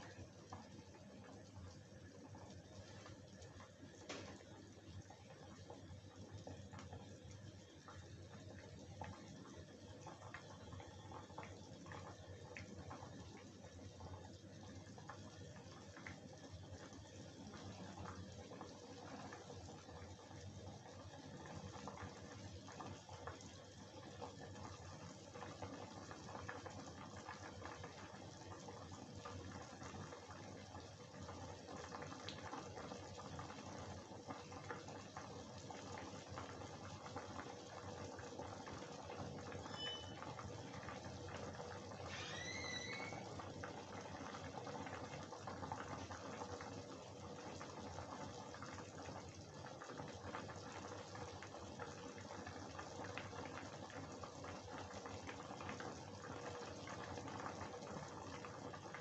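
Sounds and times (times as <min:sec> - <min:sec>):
curry bubbling: 0:00.0 - 0:59.0
high chirps: 0:39.7 - 0:40.2.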